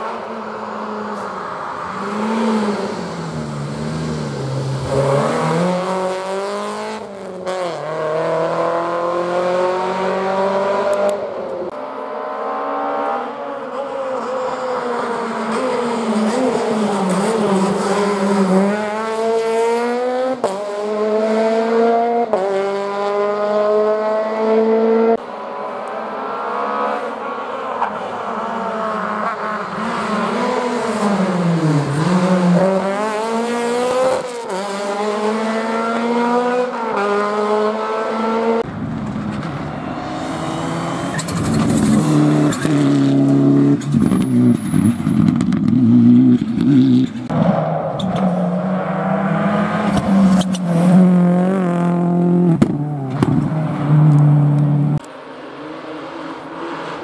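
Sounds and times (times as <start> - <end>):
engine braking and downshifting: 0.0 - 57.0
rally cars passing at full throttle: 0.0 - 57.0.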